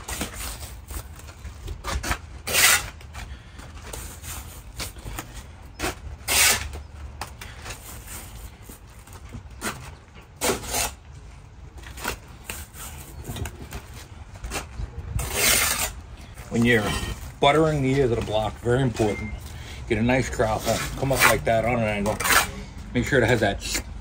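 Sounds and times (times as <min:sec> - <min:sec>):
trowel scraping wet mortar: 0:01.8 - 0:03.1, 0:05.8 - 0:06.8, 0:10.4 - 0:11.0, 0:15.1 - 0:16.0, 0:20.2 - 0:23.9.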